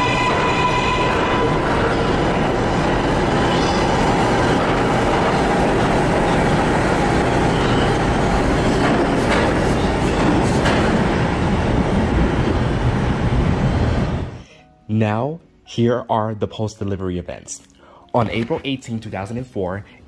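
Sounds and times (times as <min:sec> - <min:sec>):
subway train wheels rumbling: 0:00.0 - 0:14.4.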